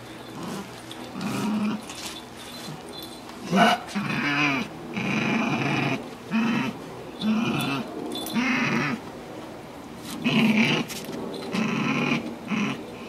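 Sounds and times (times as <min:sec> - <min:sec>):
dog growling: 0:00.3 - 0:02.0, 0:03.4 - 0:09.0, 0:10.1 - 0:13.0.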